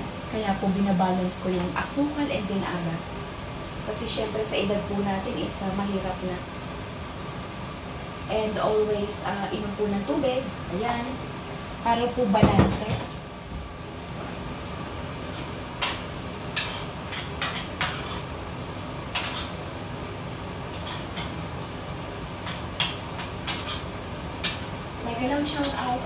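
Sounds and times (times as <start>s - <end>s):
spoon scraping frying pan: 20.7s - 21.4s, 22.4s - 24.6s.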